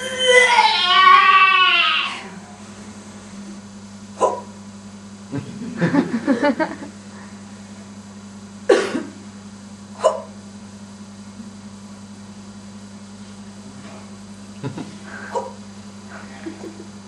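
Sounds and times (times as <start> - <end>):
woman yelping: 0.0 - 2.4
low electrical hum: 0.0 - 17.0.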